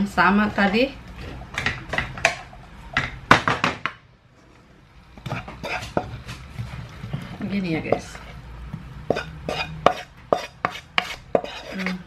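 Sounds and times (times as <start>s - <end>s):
frying pan knocking on dish: 3.0s - 4.0s, 7.9s - 8.1s.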